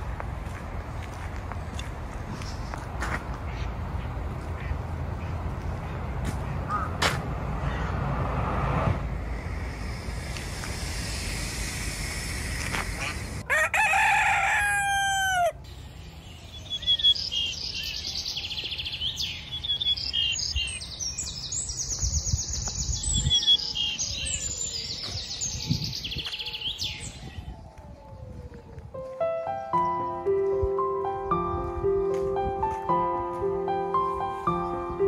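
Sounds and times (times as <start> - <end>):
rushing outdoor noise: 0.0 - 35.0
rooster crowing: 13.4 - 15.7
small birds chirping: 15.7 - 27.8.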